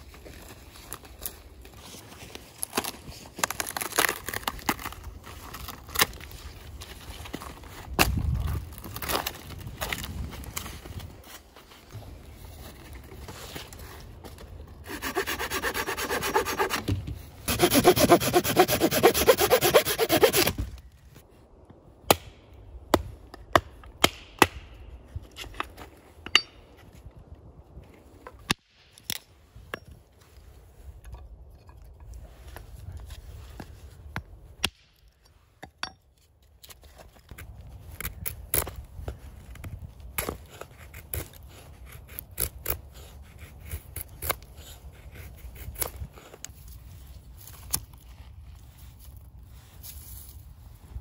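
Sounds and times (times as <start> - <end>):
hand saw cutting branch: 14.8 - 20.6, 40.2 - 46.5
hatchet splitting stick: 14.9 - 20.6.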